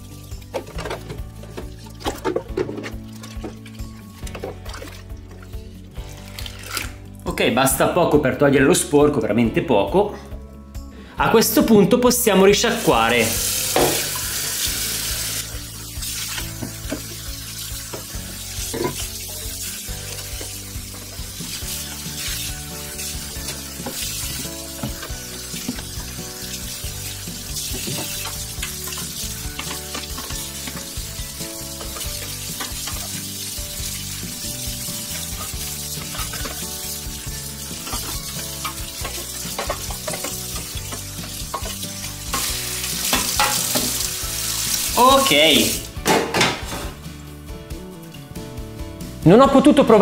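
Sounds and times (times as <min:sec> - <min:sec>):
tap water splashing over basket: 0:00.5 - 0:05.2, 0:16.1 - 0:19.5, 0:20.4 - 0:36.7, 0:37.8 - 0:44.0.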